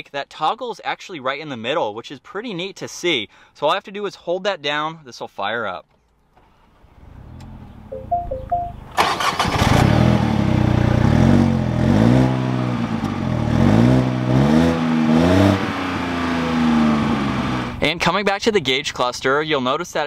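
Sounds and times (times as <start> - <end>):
car engine starting and revving: 6.4 - 7.9, 8.7 - 17.8
rising electronic tones: 7.8 - 9.0.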